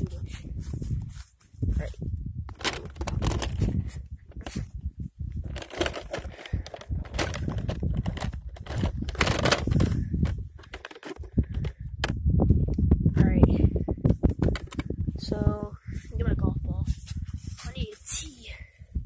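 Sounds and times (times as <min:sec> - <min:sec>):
wind buffeting microphone: 0:00.0 - 0:19.0
phone handling rustling and knocking: 0:02.5 - 0:04.6, 0:05.4 - 0:12.2, 0:14.2 - 0:15.0.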